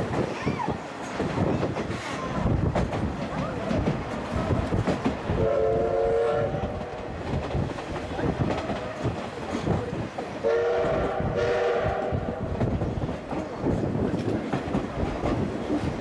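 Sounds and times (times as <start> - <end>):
train wheels clickety-clack: 0.0 - 16.0
steam locomotive whistle: 5.4 - 7.0, 10.4 - 12.4.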